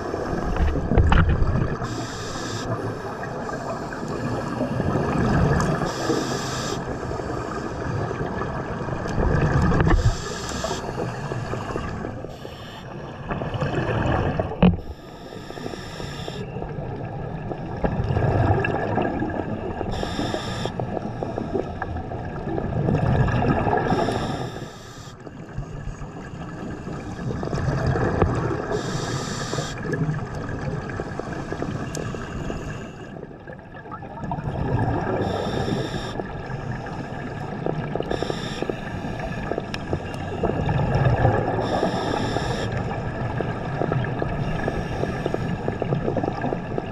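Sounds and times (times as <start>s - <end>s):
exhaled bubbles gushing: 0.0s - 15.0s, 16.4s - 24.5s, 25.9s - 46.9s
faint steady hum: 0.0s - 46.9s
diver breathing through regulator: 1.8s - 4.6s, 5.8s - 7.9s, 9.8s - 13.0s, 14.8s - 16.5s, 19.9s - 21.8s, 23.8s - 25.8s, 28.6s - 30.0s, 31.0s - 33.2s, 35.1s - 37.2s, 38.1s - 40.8s, 41.5s - 42.8s, 44.4s - 45.8s.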